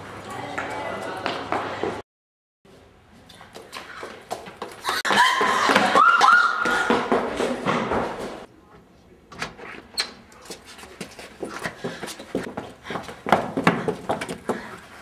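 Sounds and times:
running footsteps: 0:03.2 - 0:08.5, 0:10.4 - 0:15.0.

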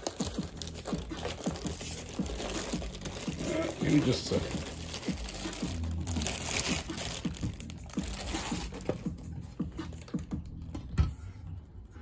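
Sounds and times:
packaging crinkling and rustling: 0:00.0 - 0:09.2.

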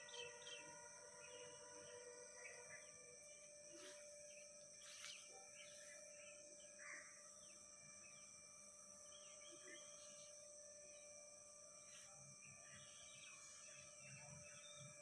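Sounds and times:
bird chirps: 0:00.0 - 0:01.5, 0:11.8 - 0:15.0
high insect drone: 0:00.0 - 0:15.0.

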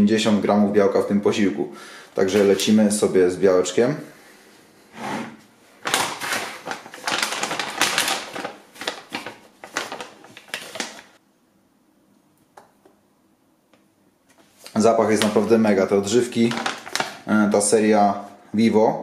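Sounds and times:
plastic pouch crinkling: 0:05.8 - 0:11.2, 0:14.7 - 0:17.5.

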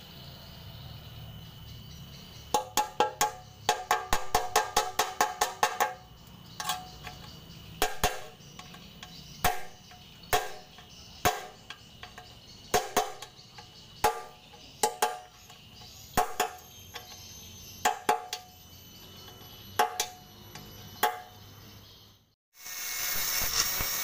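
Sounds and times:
hammer striking steel punch: 0:07.8 - 0:08.4, 0:09.4 - 0:11.8, 0:12.7 - 0:13.3, 0:14.0 - 0:15.3, 0:16.2 - 0:16.6, 0:19.8 - 0:20.2.

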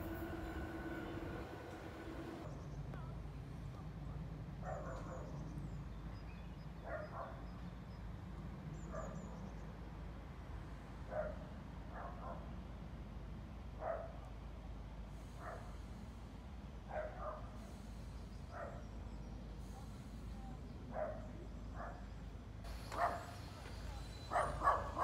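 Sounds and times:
low steady rumble: 0:00.0 - 0:02.5
dog barking faintly: 0:22.9 - 0:23.4, 0:24.2 - 0:25.0.

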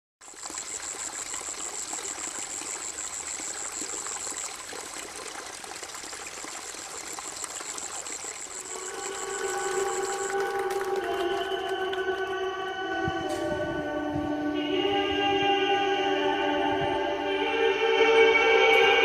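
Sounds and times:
water splashing onto rocks: 0:03.4 - 0:12.7
high-pitched pulsing tone: 0:07.8 - 0:14.0.

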